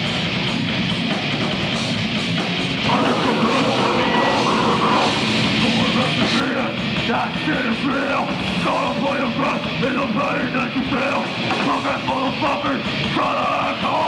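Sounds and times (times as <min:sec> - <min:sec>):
heavy rock band playing: 0:00.0 - 0:14.0
vocalist yelling: 0:02.9 - 0:11.2.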